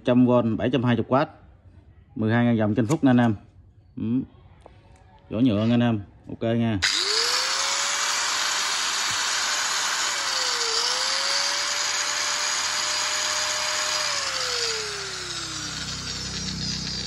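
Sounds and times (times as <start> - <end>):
angle grinder whining: 6.8 - 17.0.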